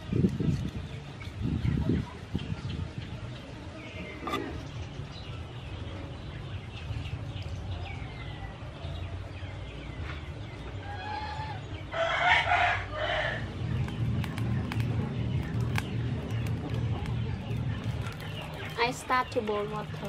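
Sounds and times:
small birds chirping: 0.0s - 20.0s
rooster crowing: 10.8s - 13.5s.

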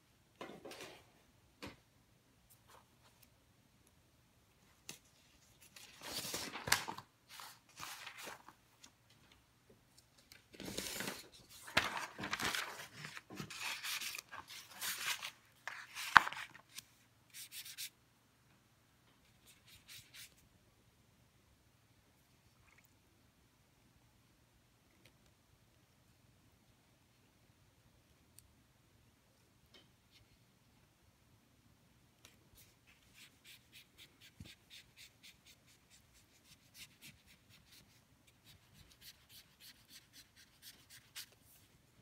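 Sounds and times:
paper rustling: 4.9s - 9.0s, 10.2s - 17.9s.

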